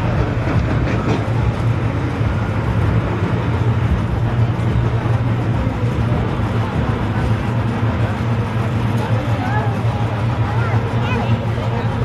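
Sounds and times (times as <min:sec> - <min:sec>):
tractor diesel engine running hard: 0:00.0 - 0:12.0.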